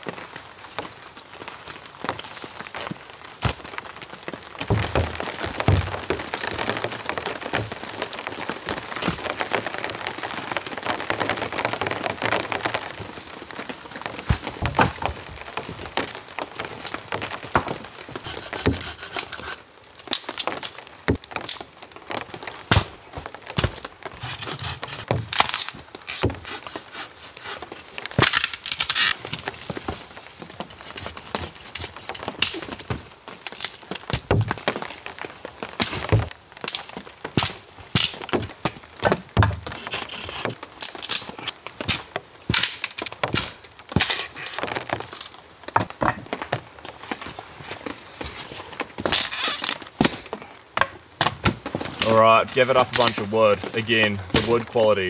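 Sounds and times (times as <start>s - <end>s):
crinkly rustling: 0.6s - 55.0s
sticks snapping: 23.6s - 29.5s.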